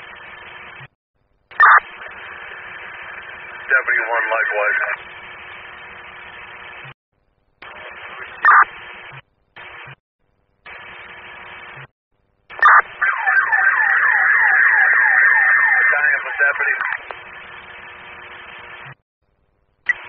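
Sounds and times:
radio static hiss: 1.5 - 7.0, 7.6 - 10.0, 10.7 - 11.9, 15.6 - 19.0
siren yelp through radio: 12.5 - 17.0.

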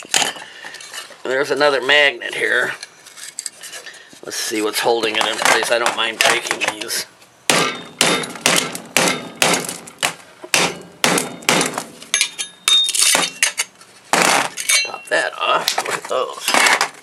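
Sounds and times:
hammer striking steel bracket: 7.5 - 9.9, 10.5 - 13.7.

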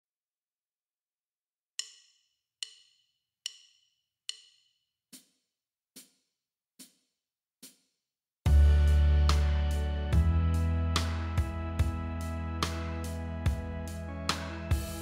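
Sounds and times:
sustained low chord: 8.5 - 15.0.

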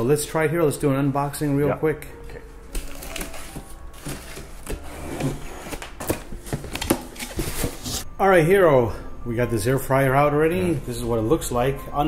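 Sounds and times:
cardboard crackles and rustles: 2.7 - 8.0
packing tape cut and pulled: 2.7 - 8.0.

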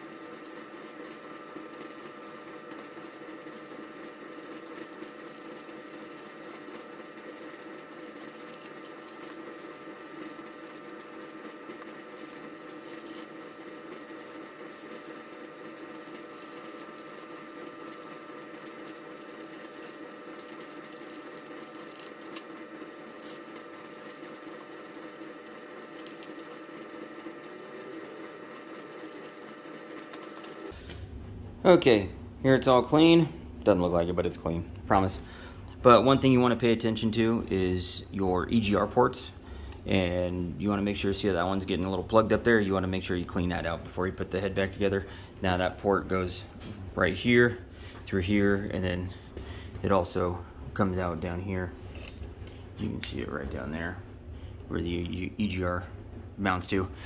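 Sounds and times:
small motor humming: 0.0 - 31.0.

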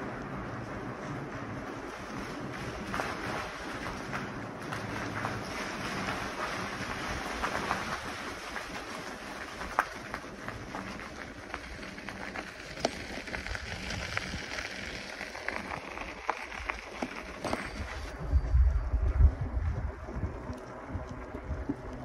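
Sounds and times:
bicycle tyres crunching on gravel: 0.0 - 22.0
stones popping and clicking: 9.6 - 18.0.

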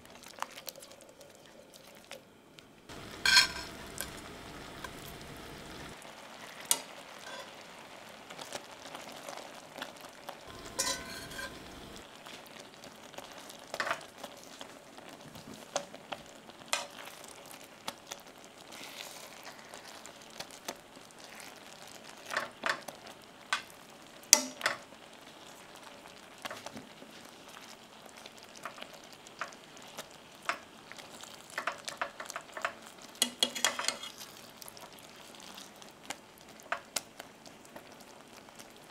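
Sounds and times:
sauce simmering with light sizzle: 0.0 - 38.9
utensils stirring and knocking pan: 2.9 - 6.0, 6.6 - 7.6, 10.5 - 12.0, 16.7 - 17.0, 24.4 - 24.8, 31.5 - 34.2.

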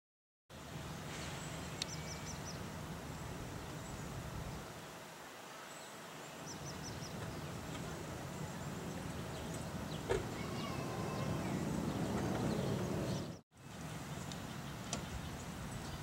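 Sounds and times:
bird chirping: 1.3 - 4.6, 5.7 - 16.0
steady low rumble: 6.8 - 13.4.

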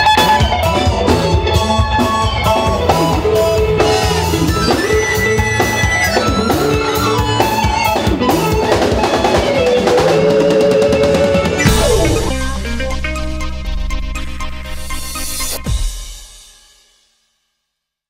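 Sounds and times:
keyboard: 0.0 - 16.0
guitar: 0.0 - 16.2
drum kit: 0.0 - 16.9
electric bass: 10.7 - 16.1.

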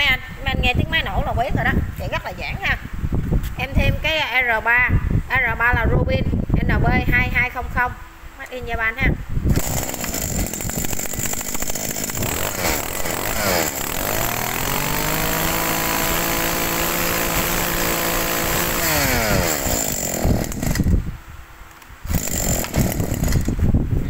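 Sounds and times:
brush cutter engine running: 9.5 - 21.1, 22.1 - 23.7.

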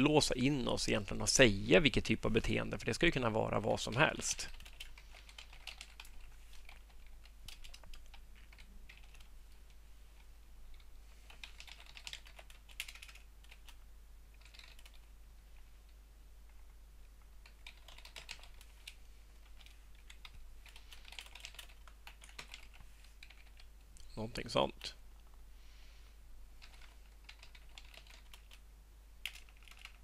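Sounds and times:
computer keyboard typing: 3.8 - 9.3, 10.7 - 15.1, 16.5 - 23.8, 26.6 - 28.6, 29.2 - 30.0.

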